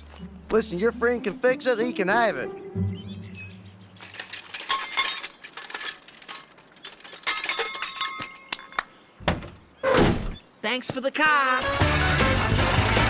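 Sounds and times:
cartoon metallic clinks and rattles: 4.0 - 8.9.

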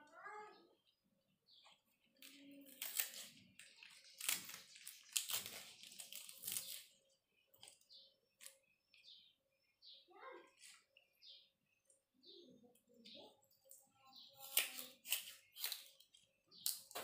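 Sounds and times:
knife cutting crunchy vegetables: 1.5 - 9.1, 13.6 - 17.0.

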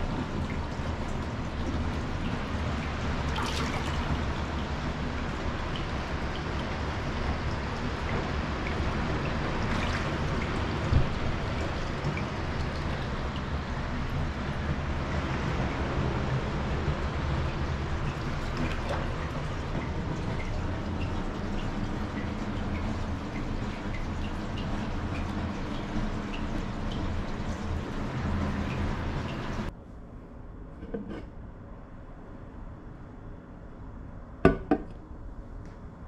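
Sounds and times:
water pouring into a bath: 0.0 - 15.4, 16.6 - 29.7
water drips: 0.0 - 29.7.

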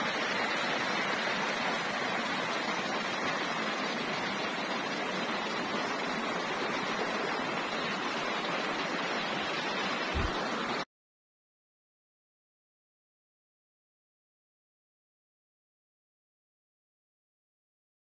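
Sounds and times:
river rushing over rocks: 0.0 - 10.8
low thump: 10.1 - 10.4.

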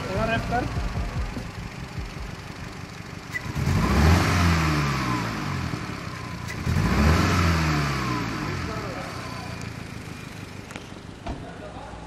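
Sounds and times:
engine revving: 0.0 - 10.6
car engine idling: 0.0 - 12.0.

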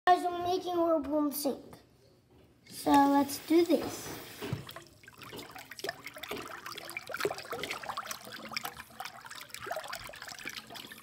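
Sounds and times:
faucet running into sink: 2.9 - 11.0.

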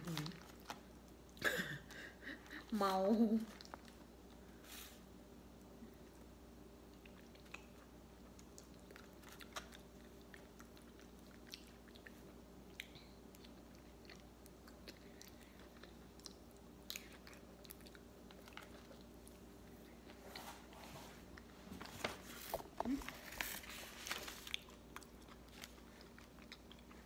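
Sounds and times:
wet chewing and lip-smacking: 6.0 - 20.1, 24.4 - 27.0.

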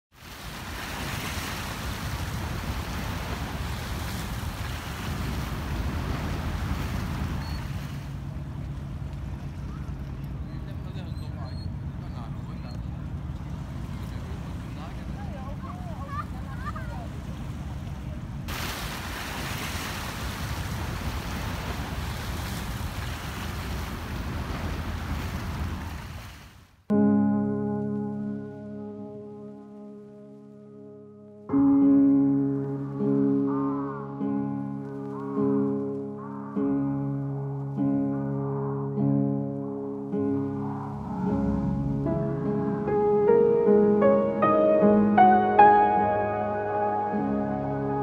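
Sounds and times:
water washing: 0.1 - 10.5, 13.0 - 26.3
wind rumbling on microphone: 0.2 - 11.0, 11.7 - 26.6, 32.8 - 43.5
wind buffeting microphone: 0.4 - 10.8.

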